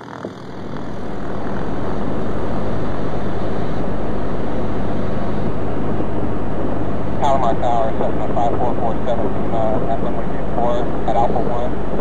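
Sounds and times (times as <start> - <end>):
propeller plane engine running: 0.0 - 12.0.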